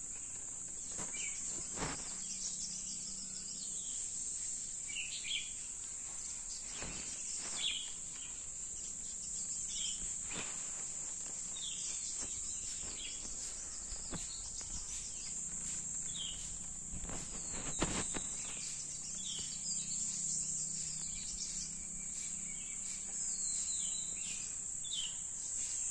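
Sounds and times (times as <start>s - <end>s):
falling bird chirps: 4.8s - 25.2s
high-pitched insect drone: 8.8s - 25.9s.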